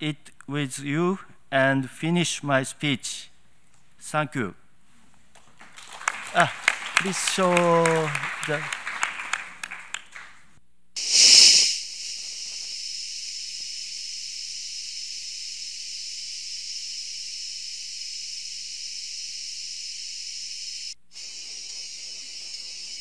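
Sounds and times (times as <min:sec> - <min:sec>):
insects droning: 0:05.6 - 0:09.9, 0:11.0 - 0:23.0
loud burst of noise: 0:11.0 - 0:22.0.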